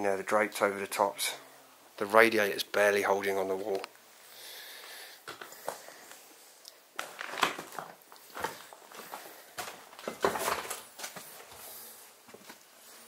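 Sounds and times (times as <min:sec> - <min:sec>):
footsteps and shuffling: 0:05.2 - 0:06.3, 0:07.0 - 0:13.0.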